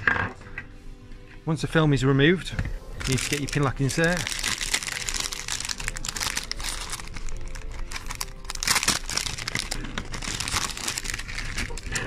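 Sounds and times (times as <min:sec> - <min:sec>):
plastic wrapper crinkling: 0:03.0 - 0:12.0.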